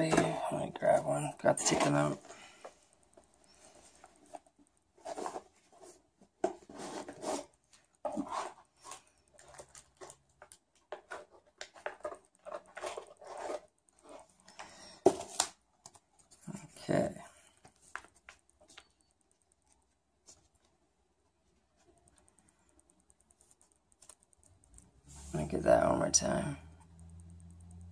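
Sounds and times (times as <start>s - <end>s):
plastic card sleeves rustling: 17.5s - 20.8s, 23.2s - 25.6s.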